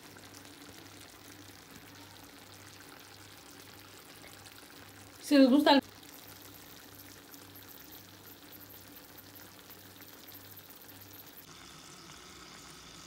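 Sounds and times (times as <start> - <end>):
pot sizzling on stove: 0.0 - 13.0.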